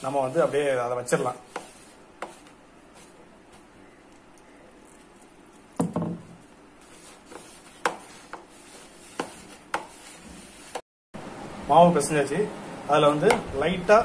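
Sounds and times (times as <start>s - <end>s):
hand kneading dough: 0.0s - 5.8s, 6.4s - 10.8s.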